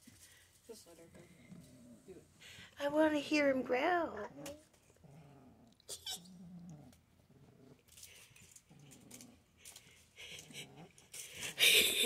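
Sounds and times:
kitten growling: 4.2 - 11.6.

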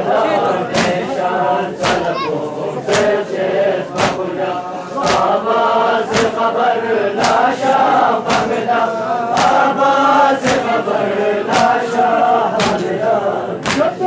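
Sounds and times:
men chanting in unison: 0.0 - 14.0
hands slapping chests: 0.7 - 1.1, 1.8 - 2.2, 2.8 - 3.3, 3.9 - 4.3, 5.0 - 5.4, 6.0 - 6.5, 7.2 - 8.7, 9.3 - 9.8, 10.4 - 10.8, 11.4 - 13.0, 13.6 - 14.0.

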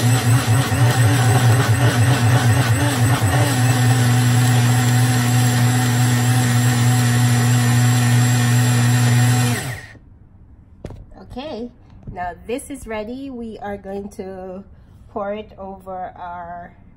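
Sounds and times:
blender motor running: 0.0 - 10.0.

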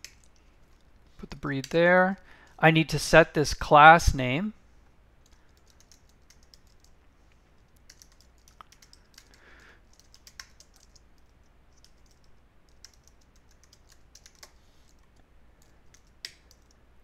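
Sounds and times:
low steady hum: 0.0 - 17.0
typing on a keyboard: 5.2 - 6.9, 7.8 - 15.0, 15.6 - 16.8.

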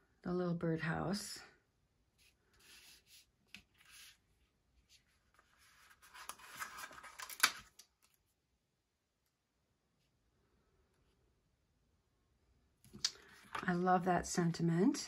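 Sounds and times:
paper sticker sheets rustling: 5.4 - 7.8.

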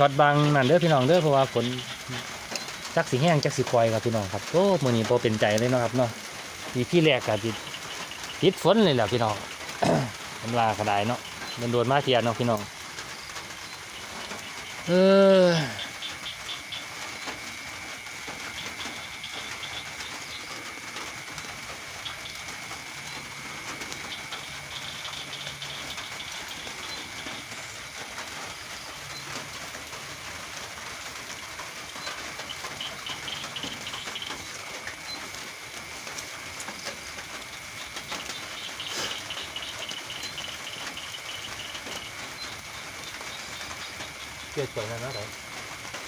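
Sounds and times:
rain pattering: 0.0 - 46.0.

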